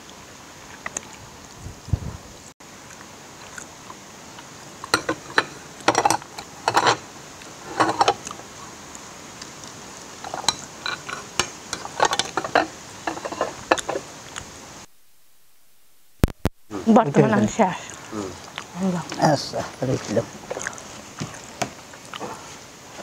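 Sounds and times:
dishes clinking: 4.8 - 7.0, 7.6 - 8.3, 10.2 - 14.1.

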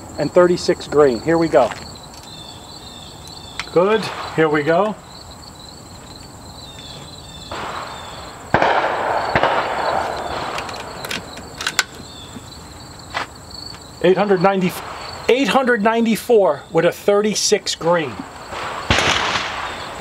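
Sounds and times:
air rifle shot: 3.9 - 4.8, 7.5 - 11.3, 18.5 - 20.0.

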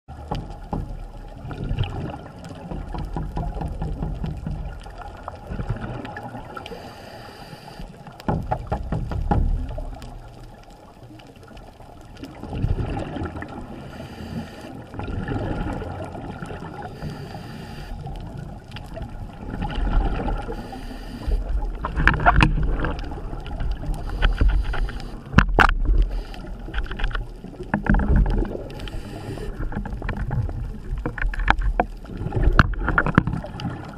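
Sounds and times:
low rumbling water movement: 0.1 - 33.9
sharp clicks and knocks: 2.6 - 5.1, 8.2 - 10.2, 21.7 - 23.0, 23.6 - 26.1, 26.7 - 28.6, 29.6 - 33.7.

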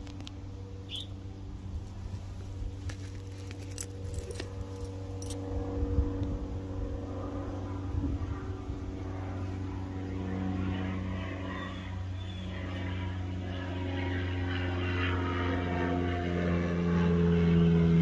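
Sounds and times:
engine drone: 0.0 - 18.0.

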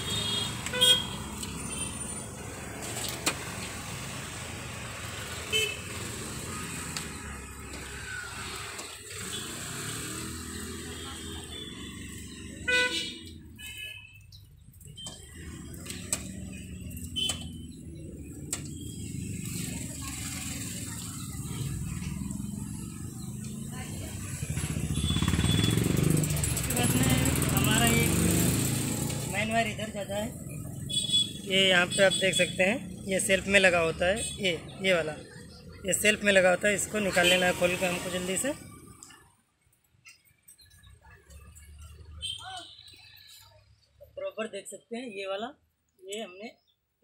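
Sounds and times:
vehicle horn toots: 0.0 - 1.9, 5.5 - 6.0, 12.6 - 14.2, 24.9 - 25.9
traffic hum: 0.0 - 44.8.

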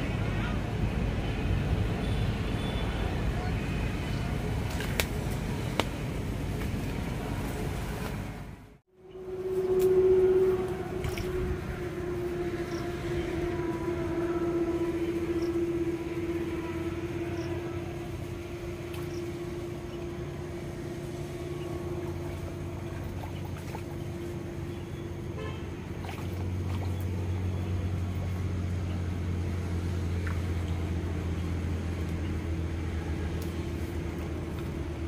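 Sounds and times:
deep loud hum: 8.9 - 35.0
motor drone humming: 9.0 - 35.0.

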